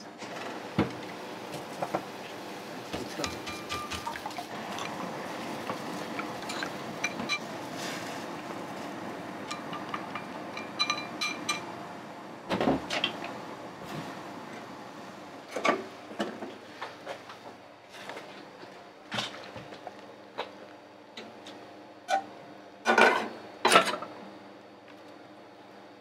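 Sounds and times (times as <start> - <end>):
crockery and utensils clinking: 3.0 - 4.2.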